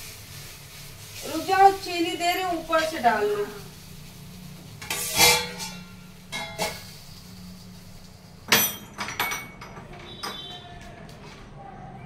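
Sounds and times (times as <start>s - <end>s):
utensils clinking against pan: 4.8s - 7.1s, 8.4s - 10.6s.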